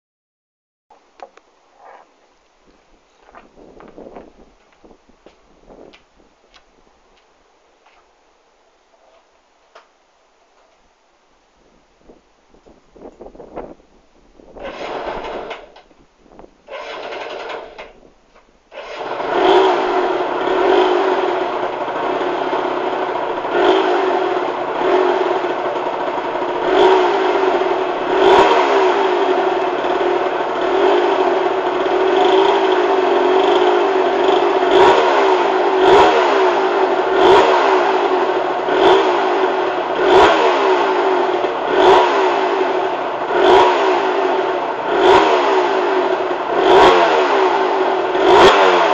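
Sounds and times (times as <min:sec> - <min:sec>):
two-stroke engine starting and revving: 0:14.6 - 0:15.9, 0:16.6 - 0:18.0, 0:18.7 - 0:48.9.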